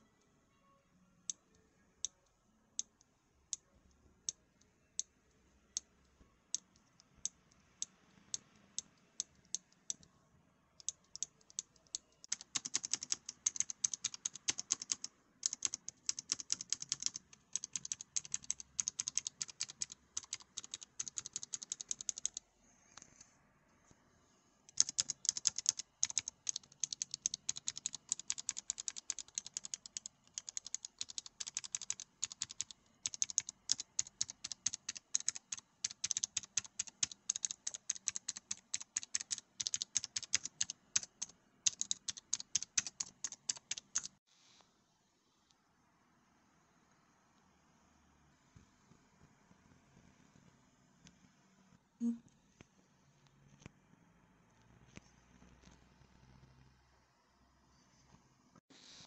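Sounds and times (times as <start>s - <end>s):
fast typing on mechanical keyboard: 10.8s - 22.4s, 24.7s - 44.2s.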